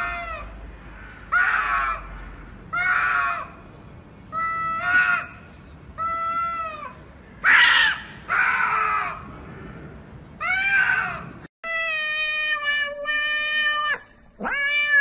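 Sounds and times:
cats yowling: 0.0 - 0.5, 10.4 - 15.0.

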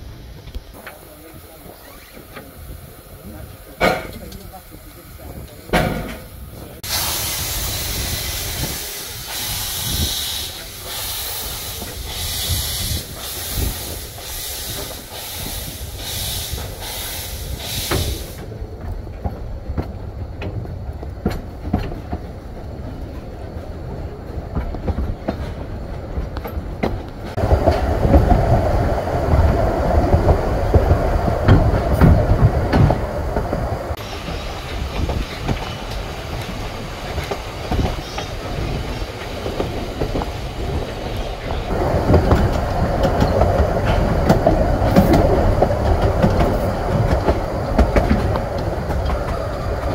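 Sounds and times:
steam hissing: 0.0 - 18.6, 27.3 - 49.9
carriage rumbling on track: 17.6 - 49.9.

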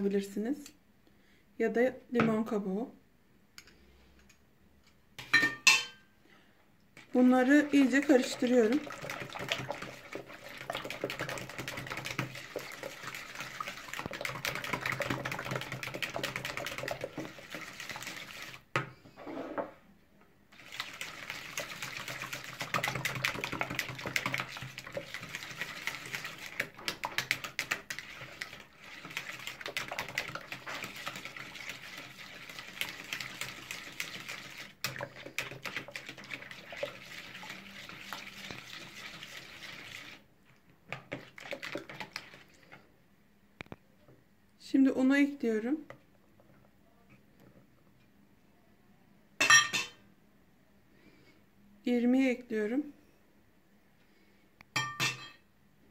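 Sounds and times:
wet batter sloshing: 7.0 - 18.7, 20.5 - 43.0.

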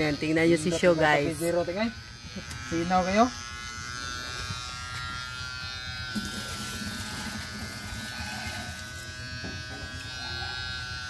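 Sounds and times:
electric hair clippers buzzing: 0.0 - 11.0.

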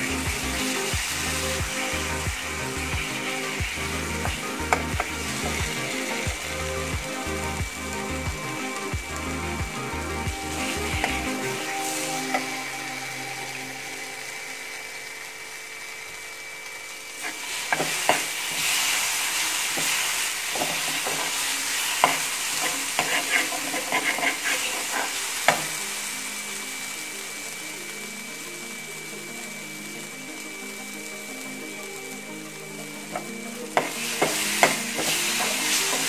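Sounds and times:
paste sizzling in oil: 0.0 - 36.0
metal spoon scraping pan: 22.6 - 25.2.

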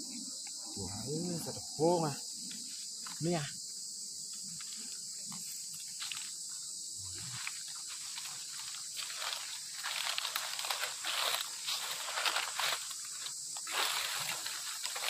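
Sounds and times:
insects chirping: 0.0 - 15.0
dry leaves crackling underfoot: 7.3 - 15.0.

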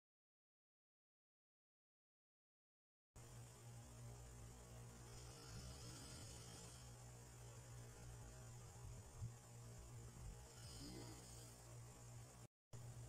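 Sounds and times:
faint low hum with hiss: 3.2 - 13.0.

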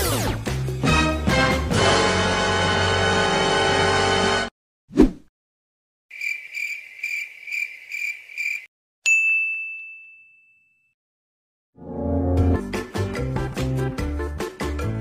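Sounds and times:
bell-like ding: 9.1 - 11.0.

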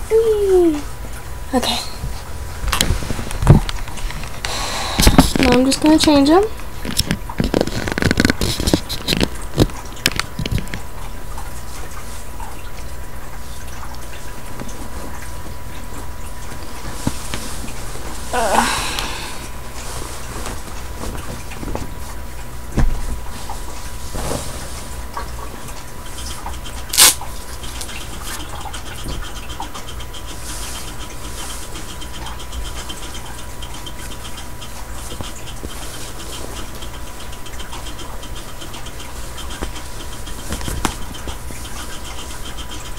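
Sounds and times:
rustling of clothes: 2.0 - 4.4, 16.5 - 25.8
steady low hum: 10.8 - 42.9.

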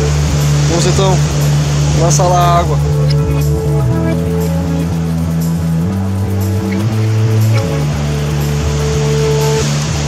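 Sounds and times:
background music with held notes: 0.0 - 10.0
steady bass line: 0.0 - 10.0.

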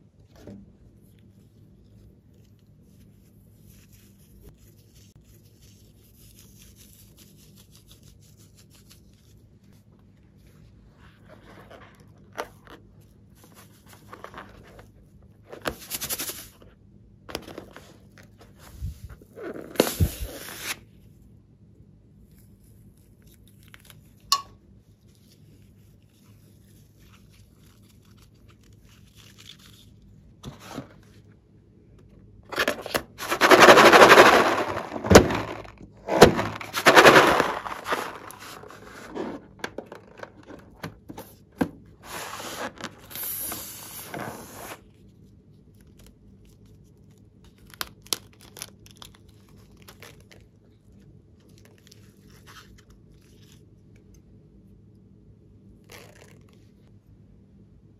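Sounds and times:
balloons rubbing and crackling: 32.5 - 39.7.

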